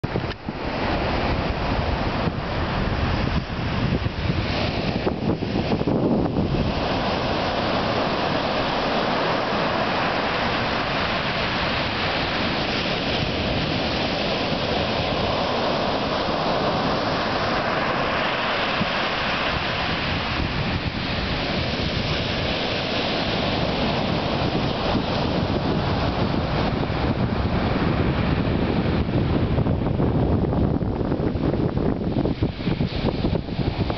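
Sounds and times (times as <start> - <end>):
ocean waves breaking on sand: 0.0 - 33.9
wind buffeting microphone: 0.0 - 33.9.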